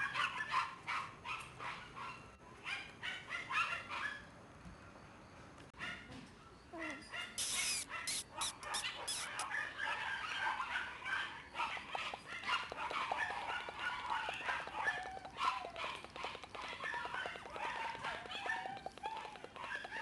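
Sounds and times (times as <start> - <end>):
puppies yipping and whimpering: 7.4 - 10.7, 11.6 - 20.0.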